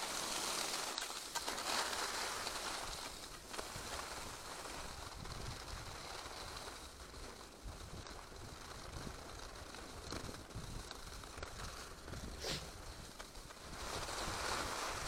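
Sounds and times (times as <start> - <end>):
skis hissing over snow: 0.0 - 15.0
wind buffeting microphone: 3.7 - 6.2.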